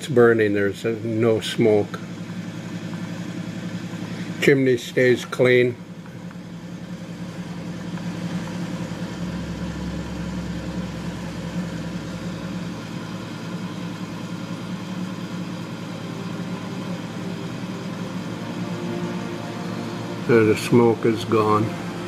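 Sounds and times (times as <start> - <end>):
electric hum: 0.8 - 22.0
blower rushing air: 5.7 - 22.0.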